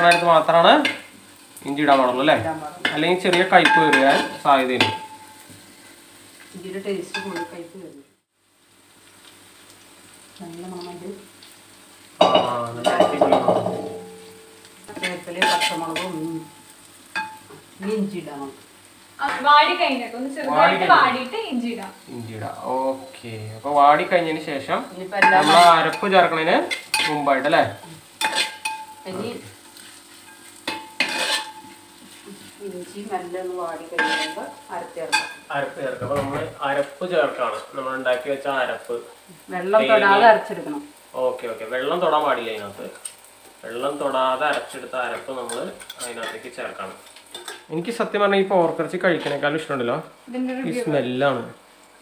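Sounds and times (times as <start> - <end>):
oil sizzling: 0.0 - 52.0
metal spatula scraping pan: 2.8 - 5.5, 12.2 - 16.3, 25.2 - 27.4, 28.2 - 32.5, 33.9 - 35.5, 44.5 - 47.7, 49.1 - 49.5.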